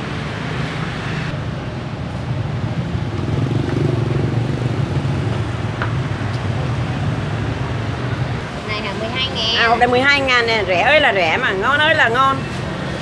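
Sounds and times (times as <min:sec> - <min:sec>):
motorbike and car engines passing: 0:00.0 - 0:13.0.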